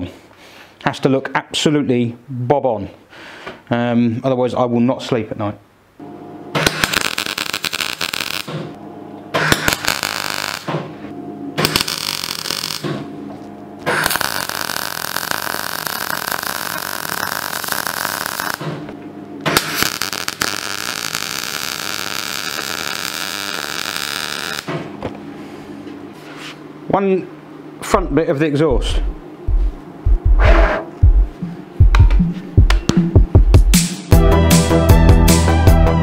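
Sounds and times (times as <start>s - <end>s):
welder crackling: 6.6s - 8.8s, 9.4s - 10.9s, 11.6s - 13.0s, 13.8s - 24.8s.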